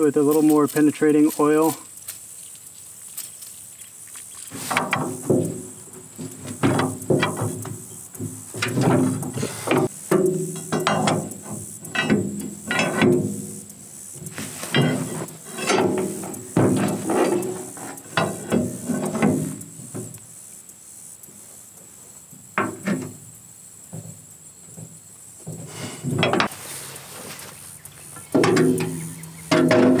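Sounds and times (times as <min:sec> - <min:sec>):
steel bar clanking on metal hub: 0:04.5 - 0:20.2, 0:25.5 - 0:26.5, 0:28.2 - 0:30.0.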